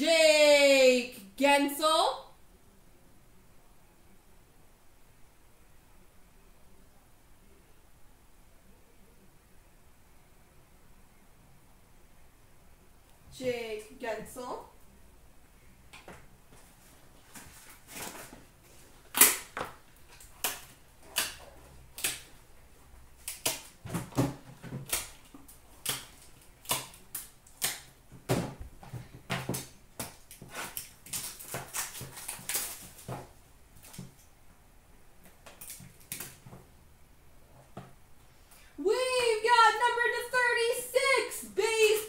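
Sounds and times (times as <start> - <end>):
trading cards clicking and snapping: 19.1 - 22.4, 23.1 - 28.0, 35.3 - 36.5.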